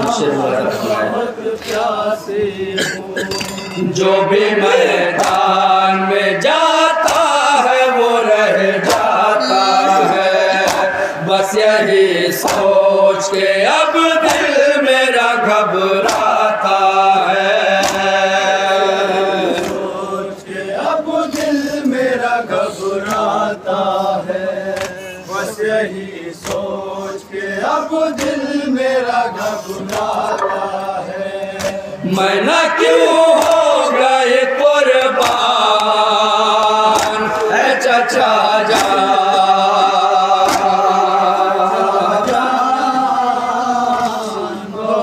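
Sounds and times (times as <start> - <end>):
men chanting in unison: 0.0 - 45.0
hands slapping chests: 5.2 - 5.5, 10.6 - 11.2, 12.4 - 12.8, 16.0 - 16.3, 17.8 - 18.1, 37.0 - 37.5, 38.7 - 39.0.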